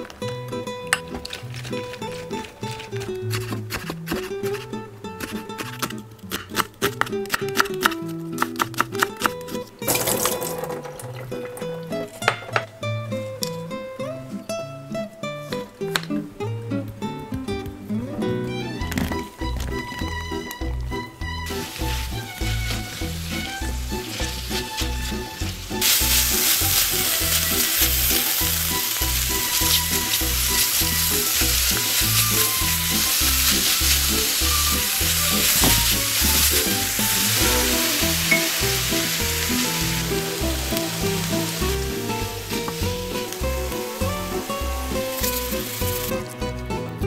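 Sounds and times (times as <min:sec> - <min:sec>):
background music with steady beat: 0:16.6 - 0:47.0
spatula stirring in a pan: 0:21.5 - 0:44.0
zucchini sizzling in a pan: 0:21.5 - 0:46.2.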